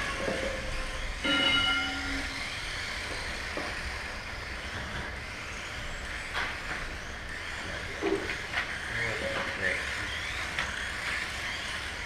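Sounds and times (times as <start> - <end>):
electric toy car motors whining: 0.0 - 12.0
short electronic beep: 1.2 - 2.4.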